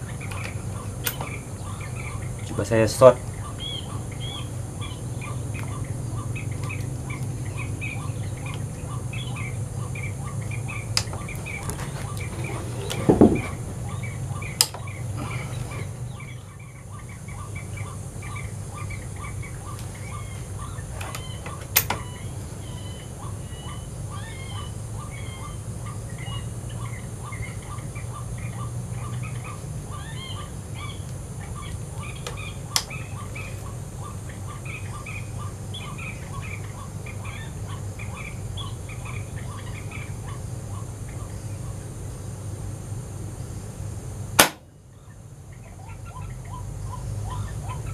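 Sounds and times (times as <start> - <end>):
bird chirps: 0.0 - 41.8, 44.9 - 47.9
low steady hum: 0.0 - 47.9
sharp clicks: 10.9 - 11.2
thump: 13.1 - 13.6.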